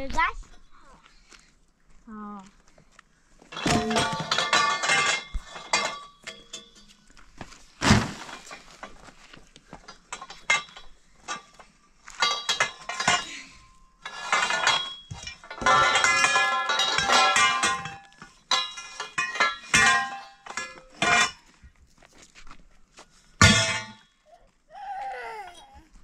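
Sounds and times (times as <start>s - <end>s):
steel pipes clanking and ringing: 3.5s - 7.2s, 9.9s - 21.6s, 23.4s - 24.3s.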